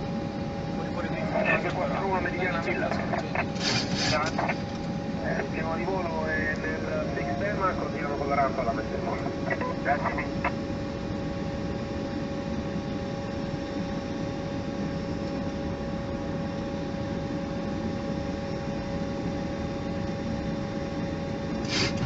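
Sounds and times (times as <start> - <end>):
faint steady tonal hum: 0.0 - 21.6
aircraft engine noise: 0.0 - 22.0.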